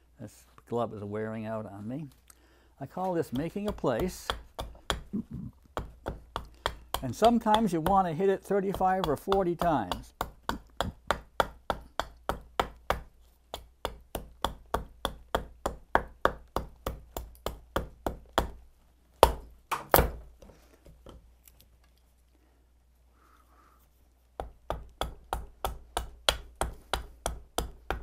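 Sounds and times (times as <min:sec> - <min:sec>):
hatchet chopping wood: 0:03.0 - 0:18.6, 0:19.2 - 0:20.3, 0:24.4 - 0:28.0.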